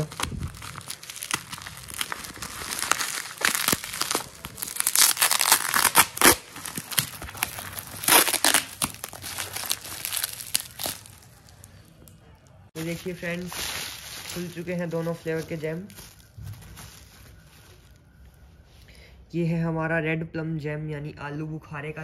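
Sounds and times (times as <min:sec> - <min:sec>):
packing tape ripping: 0:00.0 - 0:11.7
bubble wrap crinkling: 0:00.0 - 0:18.7.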